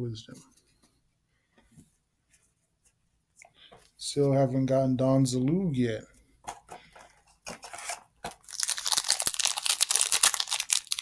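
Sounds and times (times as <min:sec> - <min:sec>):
foil wrapper crinkling and tearing: 0:07.7 - 0:11.0.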